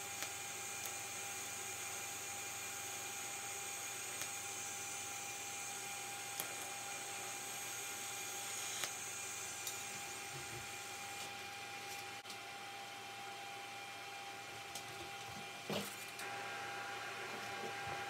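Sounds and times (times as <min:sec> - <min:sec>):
welding arc hissing: 0:00.0 - 0:11.9.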